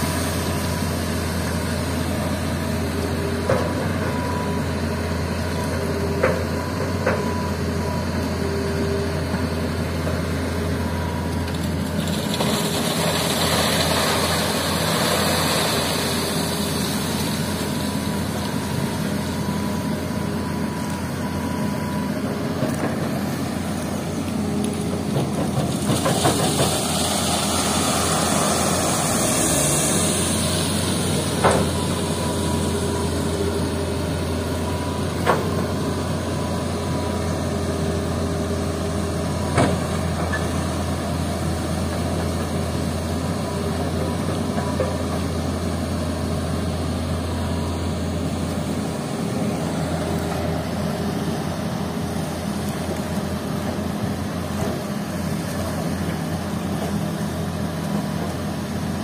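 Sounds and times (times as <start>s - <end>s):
excavator diesel engine under load: 0.0s - 59.0s
sand and gravel dumped into truck: 11.3s - 18.7s, 25.0s - 33.3s.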